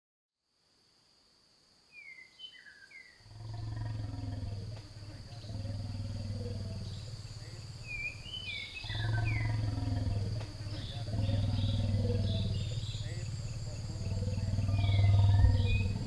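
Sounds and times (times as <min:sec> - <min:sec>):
birds chirping: 0:02.0 - 0:16.0
elephants rumbling: 0:03.3 - 0:16.0
high-pitched hum: 0:03.8 - 0:16.0.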